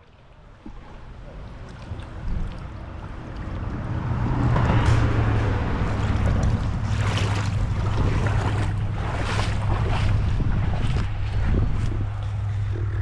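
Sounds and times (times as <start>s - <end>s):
wind buffeting microphone: 0.6s - 13.0s
footsteps through grass and mud: 6.9s - 12.9s.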